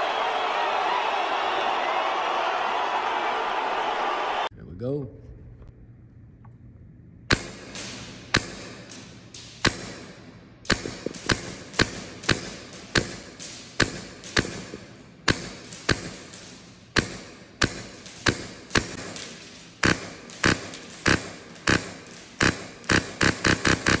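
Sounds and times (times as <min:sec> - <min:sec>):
airsoft rifle shots echoing: 0:07.3 - 0:24.0.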